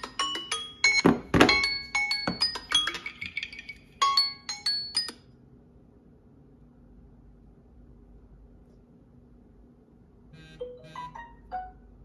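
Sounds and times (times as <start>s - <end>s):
faint hum: 0.0s - 12.0s
phone timer chime alert: 10.4s - 11.8s.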